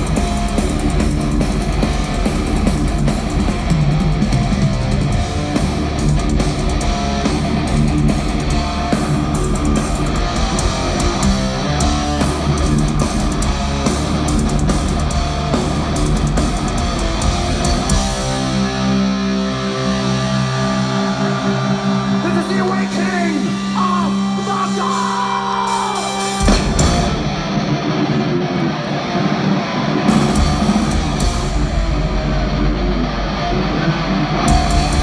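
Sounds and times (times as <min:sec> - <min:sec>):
fast dense drumming: 0:00.0 - 0:21.0, 0:21.8 - 0:27.6, 0:30.1 - 0:33.4, 0:34.4 - 0:35.0
distorted electric guitars: 0:00.0 - 0:35.0.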